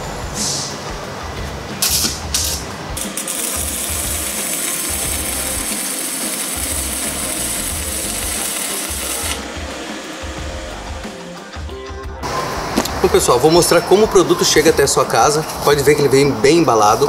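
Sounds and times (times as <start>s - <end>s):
welding arc crackling sizzle: 1.8s - 11.2s.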